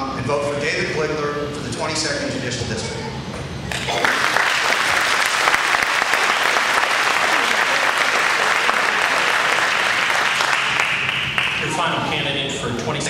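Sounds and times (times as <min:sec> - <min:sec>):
audience applauding: 0:03.7 - 0:11.7.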